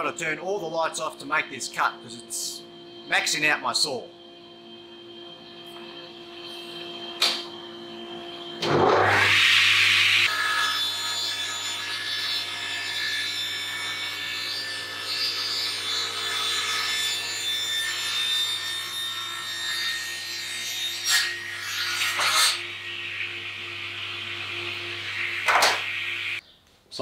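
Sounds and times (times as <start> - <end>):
machine hum: 0.0 - 17.1, 21.4 - 26.4
panel saw cutting timber: 8.5 - 26.4.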